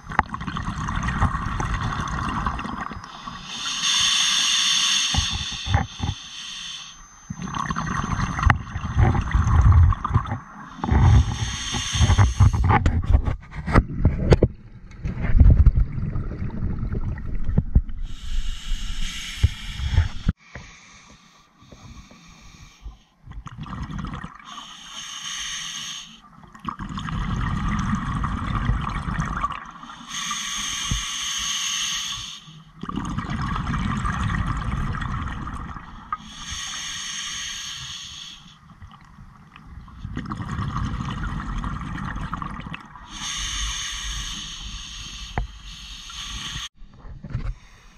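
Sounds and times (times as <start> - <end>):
regulator hissing inhale: 3.0 - 7.2, 10.7 - 12.8, 18.0 - 23.2, 24.4 - 26.2, 29.9 - 32.7, 36.0 - 38.6, 43.0 - 46.8, 47.5 - 47.9.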